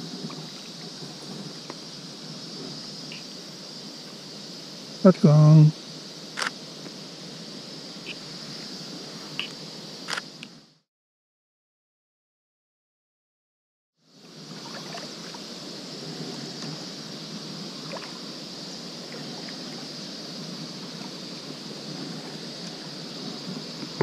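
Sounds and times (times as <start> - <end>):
water wash from kayak paddling: 14.4 - 24.0.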